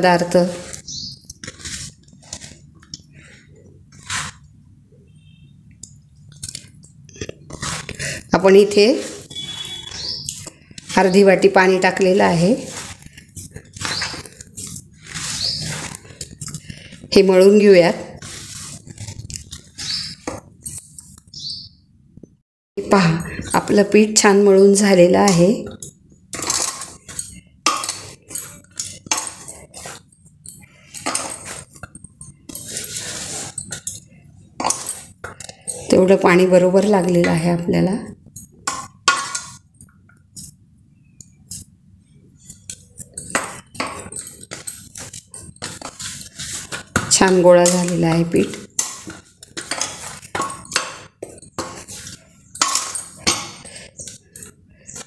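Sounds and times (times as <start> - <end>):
dough rubbing on metal plate: 0.0 - 4.6, 7.1 - 21.1, 26.4 - 37.8, 41.4 - 55.0
metal plate clinking: 46.7 - 54.5.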